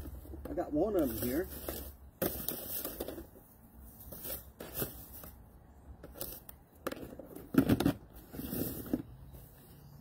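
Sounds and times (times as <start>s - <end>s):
objects rustling and clattering: 0.0s - 9.6s.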